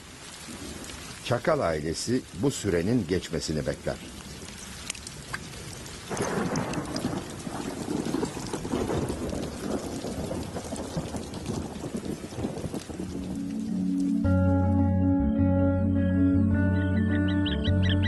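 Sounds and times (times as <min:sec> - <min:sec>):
heavy rain: 0:00.0 - 0:14.8
thunder rumbling: 0:05.1 - 0:14.4.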